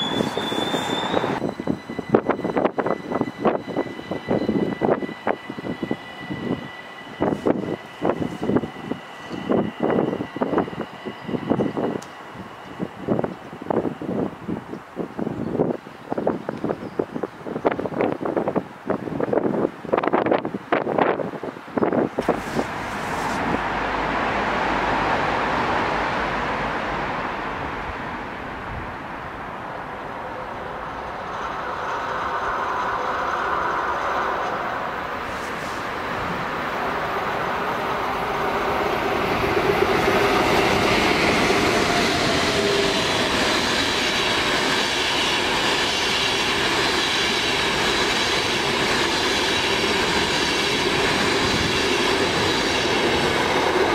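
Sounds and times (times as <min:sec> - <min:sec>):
steady high whine: 0:00.0 - 0:13.4, 0:22.2 - 0:24.4
train wheels rolling on rails: 0:00.0 - 0:53.9.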